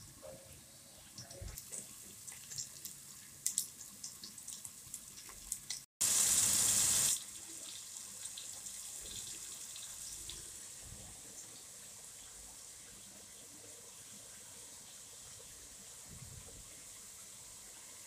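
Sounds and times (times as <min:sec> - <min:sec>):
tomatoes frying in hot oil: 0:01.1 - 0:18.0
onions sizzling in oil: 0:04.0 - 0:10.8.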